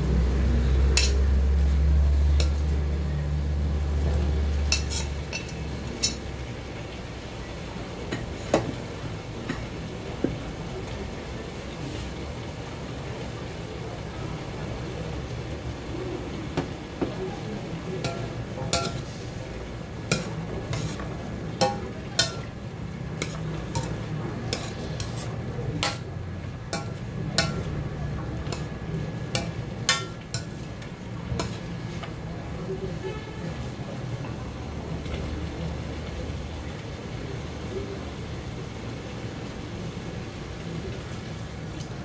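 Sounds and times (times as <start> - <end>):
food sizzling in a wok: 0.0 - 42.0
metal spatula scraping a wok: 0.9 - 1.8, 2.4 - 2.7, 4.6 - 6.2, 18.0 - 19.3, 20.0 - 22.6, 23.2 - 26.1, 26.7 - 27.7, 28.4 - 30.7, 31.3 - 32.0.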